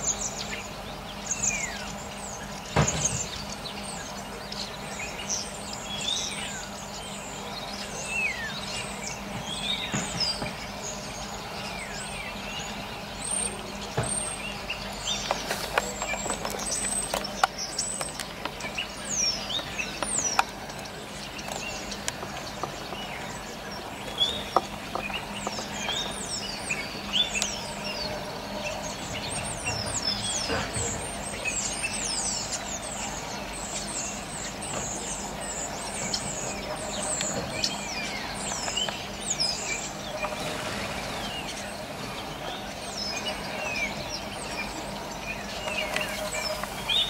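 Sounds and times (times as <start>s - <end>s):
starlings chattering: 0.0s - 47.0s.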